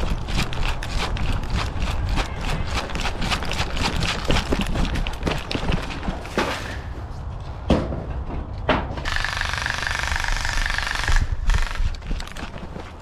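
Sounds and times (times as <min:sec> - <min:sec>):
airsoft rifle full-auto burst: 0:09.1 - 0:11.9.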